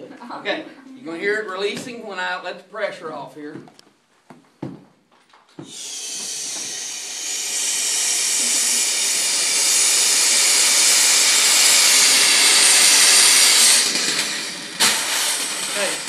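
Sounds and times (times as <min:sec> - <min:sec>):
gas hissing from cylinder valve: 0:05.6 - 0:16.0.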